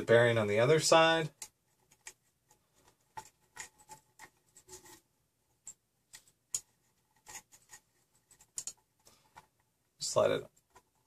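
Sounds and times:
belt clicks and rustles: 5.6 - 9.7.

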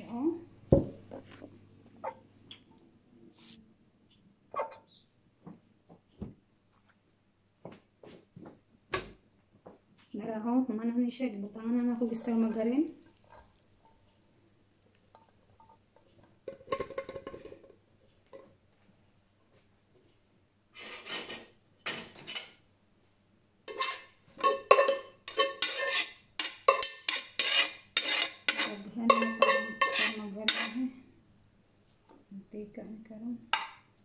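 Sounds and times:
metal kitchenware clanking: 16.5 - 17.7, 20.9 - 22.6, 23.7 - 30.8, 33.5 - 33.8.

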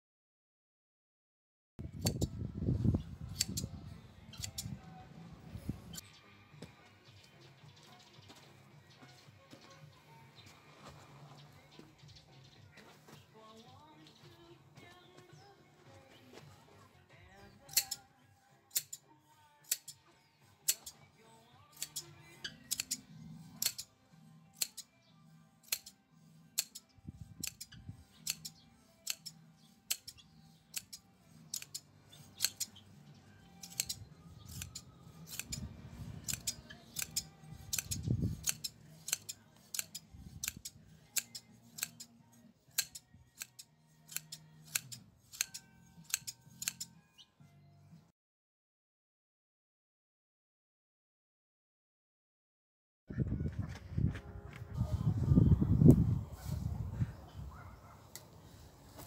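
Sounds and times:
sheep shears snipping wool: 3.2 - 4.8, 17.5 - 47.2.

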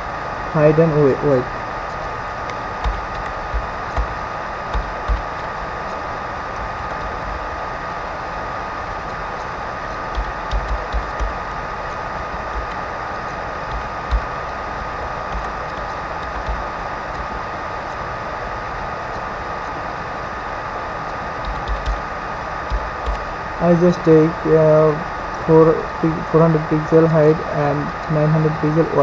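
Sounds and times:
microphone hiss: 0.0 - 29.0
thin steady whine: 0.0 - 29.0
keyboard typing thumps: 2.8 - 5.5, 10.1 - 11.4, 12.4 - 12.8, 13.7 - 14.4, 15.3 - 17.3, 21.4 - 22.1, 22.7 - 23.3.

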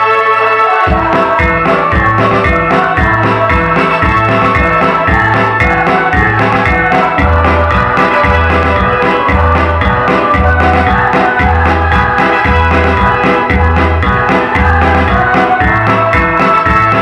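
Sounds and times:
electronic organ accompaniment: 0.0 - 17.0
women's choir singing: 0.8 - 17.0.

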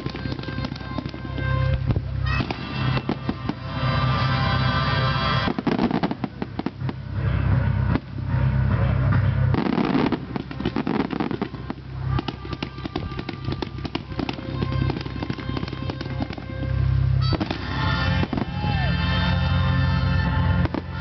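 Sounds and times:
fireworks bangs and crackles: 0.0 - 19.4, 20.6 - 21.0.

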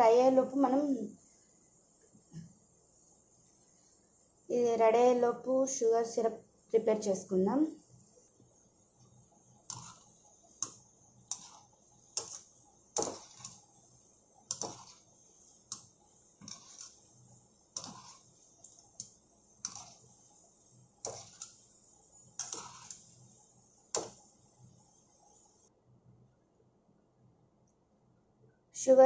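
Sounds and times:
dough balls deep-frying in oil: 0.0 - 25.7
oil popping and crackling: 14.5 - 15.0.

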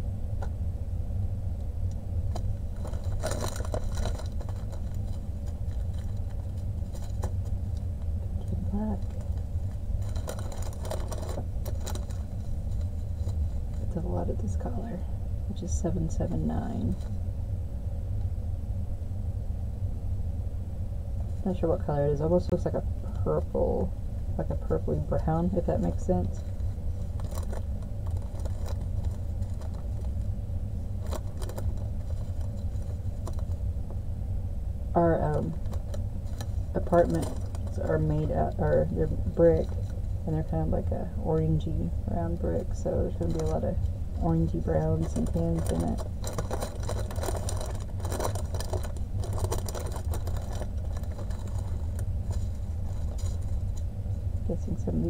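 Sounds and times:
low background rumble: 0.0 - 55.0
steady low hum: 0.0 - 55.0
plastic bags crinkling and rattling: 2.3 - 7.8, 8.4 - 14.0, 25.5 - 33.7, 35.1 - 40.2, 42.4 - 53.9.

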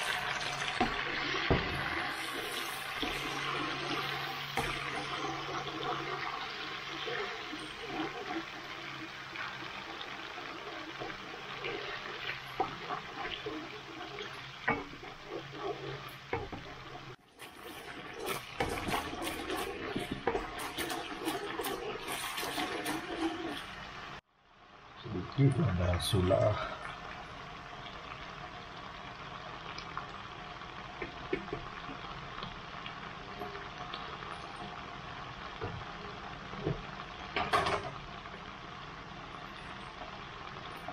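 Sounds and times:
spatula scraping a wok: 0.0 - 8.8, 10.2 - 24.2
food sizzling in a hot wok: 0.0 - 40.9.

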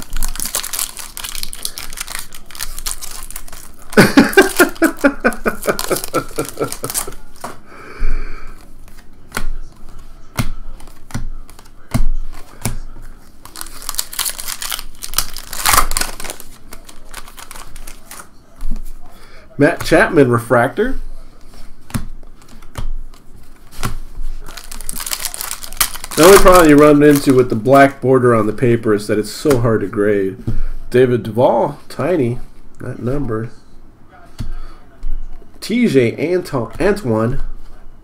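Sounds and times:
foil wrapper crinkling and tearing: 0.0 - 7.4, 13.4 - 18.3, 24.4 - 27.8
person speaking: 0.0 - 21.5, 24.3 - 37.6.

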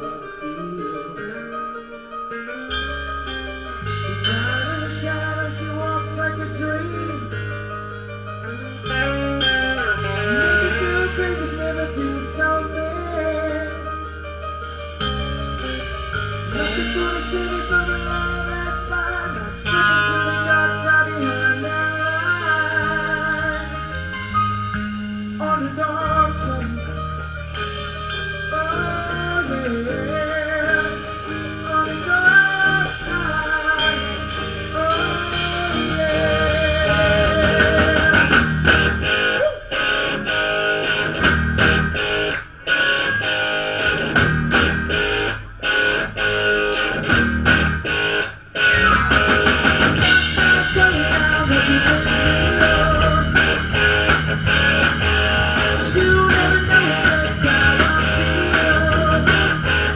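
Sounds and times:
electric guitar lead line: 0.0 - 59.9
rock band playing: 0.0 - 59.9.

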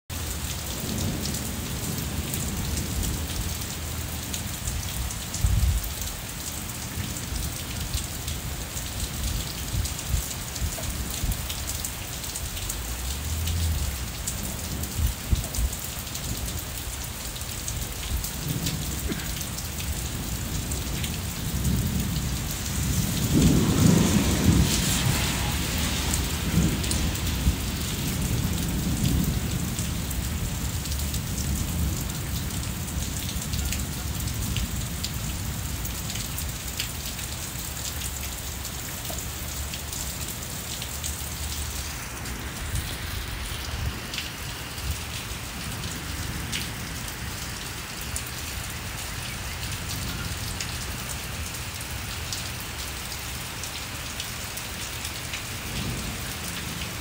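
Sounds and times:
rain falling on brick: 0.1 - 57.0
low rumbles of thunder: 0.6 - 11.6, 12.3 - 16.8, 17.7 - 36.6, 44.8 - 47.6, 55.6 - 57.0.

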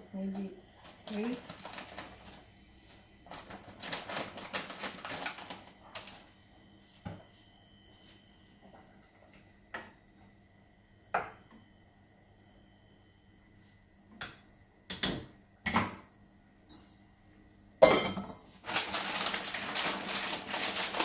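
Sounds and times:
plastic noodle packet crinkling: 0.8 - 2.4, 3.3 - 6.2, 18.6 - 21.0.

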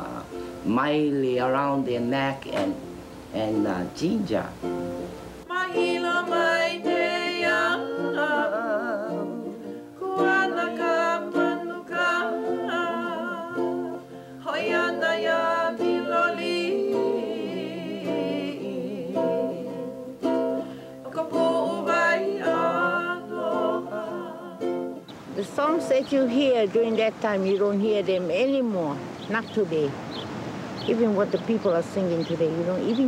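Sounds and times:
strummed ukulele: 0.0 - 26.7
woman singing: 5.5 - 27.2.

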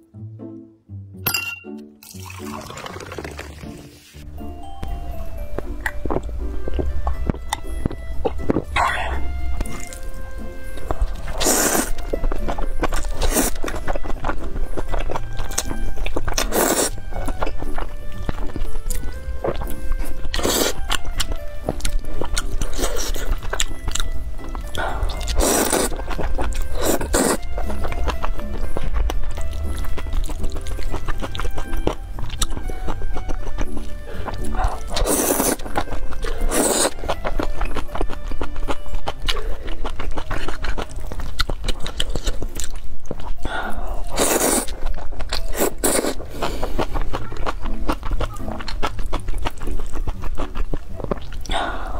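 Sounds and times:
background music: 0.0 - 51.9
chewing noodles: 5.5 - 51.9
noodle slurp: 11.1 - 12.0, 25.1 - 27.4, 34.1 - 37.1.

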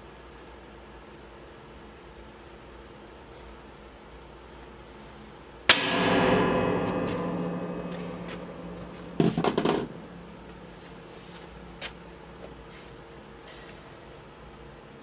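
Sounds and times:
hammer striking sheet metal: 5.7 - 11.3.

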